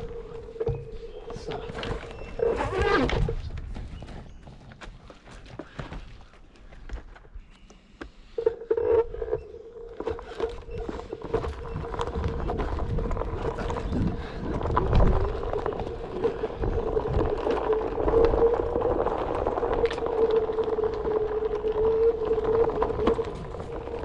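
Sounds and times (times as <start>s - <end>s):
tyre crunching on dirt: 9.9s - 24.0s.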